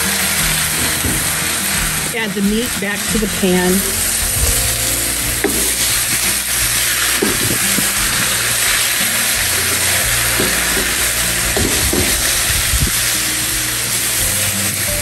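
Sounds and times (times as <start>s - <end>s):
background music: 0.0s - 15.0s
beef and onions sizzling in wok: 0.0s - 15.0s
wooden spatula scraping wok: 3.1s - 15.0s.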